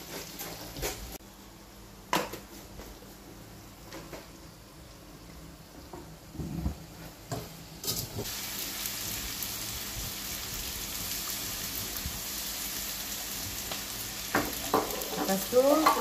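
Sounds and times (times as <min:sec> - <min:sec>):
chicken sizzling in a wok: 0:00.0 - 0:01.4, 0:06.9 - 0:16.0.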